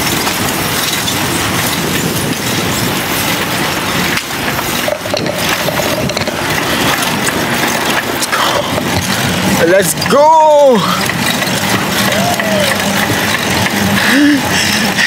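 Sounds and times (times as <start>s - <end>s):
wind buffeting microphone: 0.0s - 10.1s.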